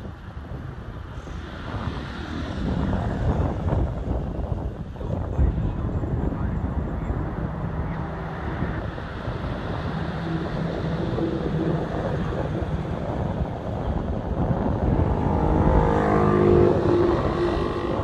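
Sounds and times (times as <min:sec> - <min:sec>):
low background rumble: 0:00.0 - 0:18.0
vehicle engine passing: 0:05.4 - 0:18.0.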